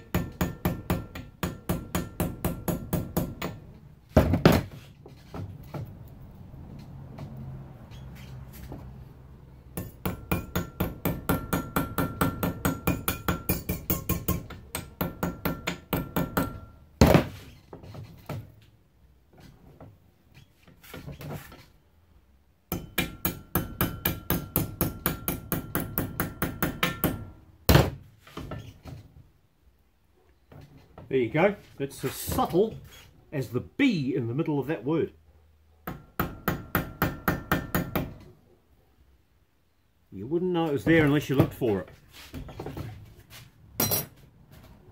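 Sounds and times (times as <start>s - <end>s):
hammer tapping ringing sheet metal: 0.0s - 3.6s, 9.8s - 16.8s, 22.7s - 27.3s.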